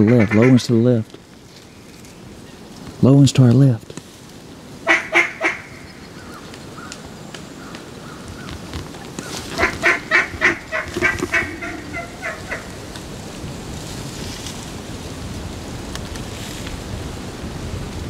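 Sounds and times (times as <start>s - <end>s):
duck quacking: 0.0s - 0.7s, 4.9s - 5.9s, 9.5s - 12.9s.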